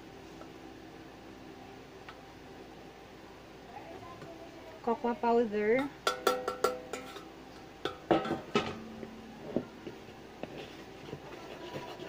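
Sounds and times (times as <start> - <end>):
metal bowl clanking and ringing: 6.1 - 7.3.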